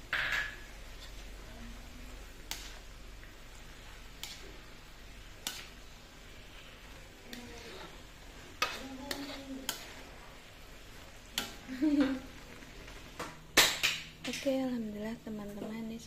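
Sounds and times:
faint sizzle of frying: 0:00.0 - 0:16.0
spatula scraping a steel wok: 0:05.3 - 0:13.1.

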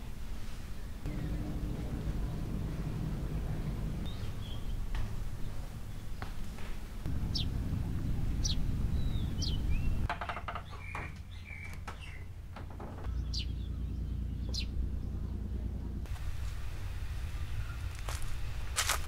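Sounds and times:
low rumble of outdoor ambience: 0:00.0 - 0:19.0
small birds chirping: 0:00.1 - 0:19.0.

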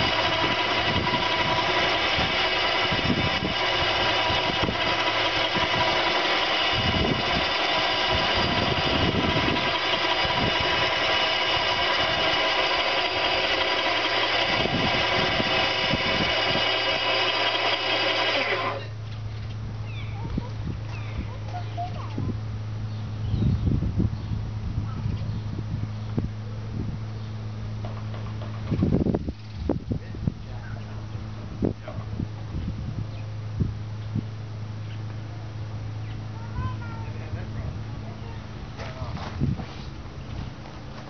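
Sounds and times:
winch motor whining: 0:00.0 - 0:22.3.

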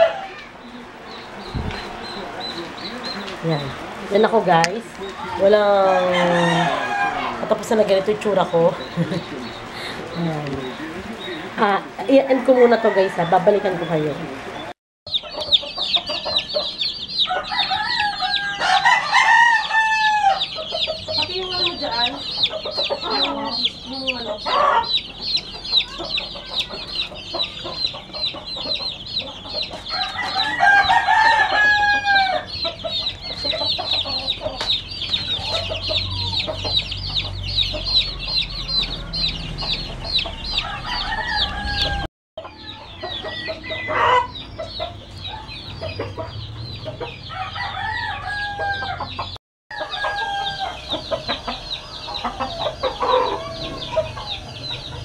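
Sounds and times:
rooster crowing: 0:00.0 - 0:00.5, 0:05.2 - 0:07.8, 0:12.3 - 0:14.4, 0:17.2 - 0:20.6, 0:29.8 - 0:32.6, 0:37.6 - 0:44.4, 0:47.2 - 0:55.0
chicks peeping: 0:00.0 - 0:55.0.

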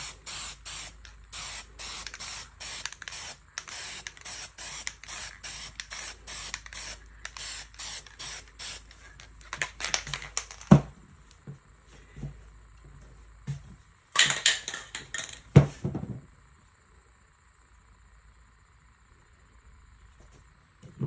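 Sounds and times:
spray paint can hissing: 0:00.0 - 0:10.7.

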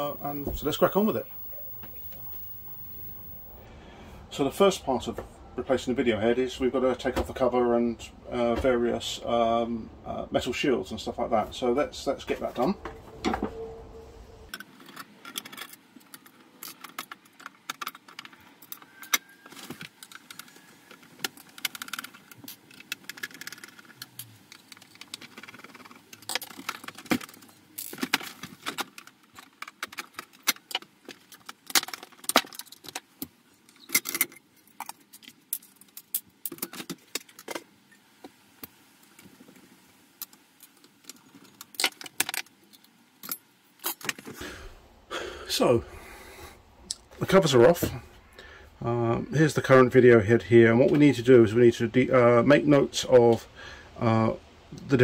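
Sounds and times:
metal clicks and rattles: 0:21.2 - 0:37.6.

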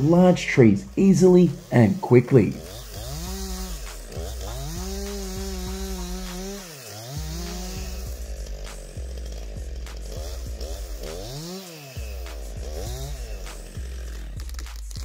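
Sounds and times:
chainsaw cutting wood: 0:00.0 - 0:15.0.

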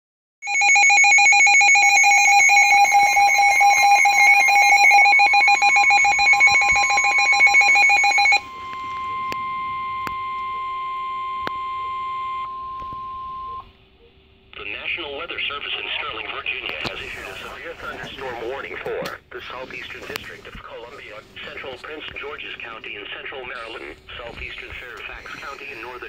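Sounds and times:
pulsing electronic alarm: 0:00.4 - 0:13.8.

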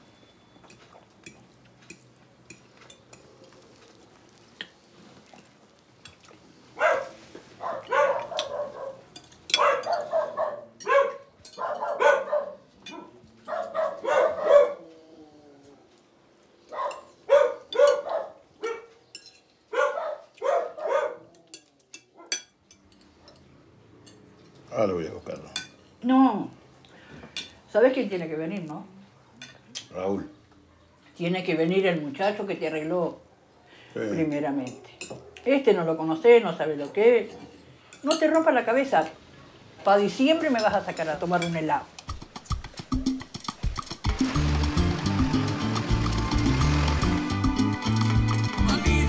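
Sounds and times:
dog barking: 0:06.8 - 0:14.8, 0:16.7 - 0:19.0, 0:19.7 - 0:21.4, 0:22.2 - 0:22.4
dog whining: 0:09.6 - 0:16.0.

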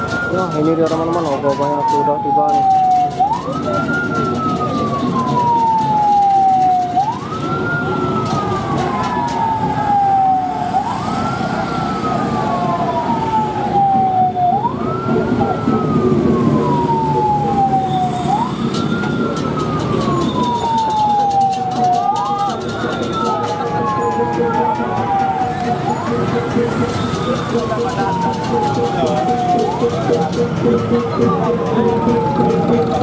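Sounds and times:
crowd and engine rumble: 0:00.0 - 0:33.0
police siren wailing: 0:00.0 - 0:33.0.

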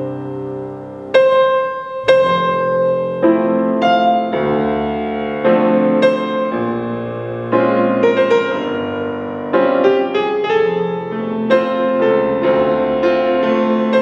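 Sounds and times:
piano chords: 0:00.0 - 0:14.0.

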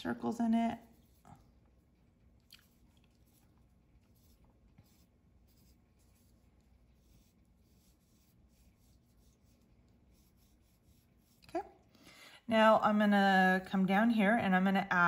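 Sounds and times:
pencil scratching on paper: 0:03.2 - 0:11.6.

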